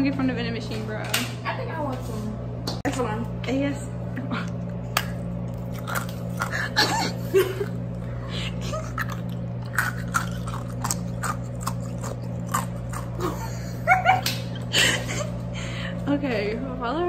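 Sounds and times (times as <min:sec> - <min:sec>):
steady low hum: 0:00.0 - 0:17.0
crunching and chewing snack: 0:04.9 - 0:13.6.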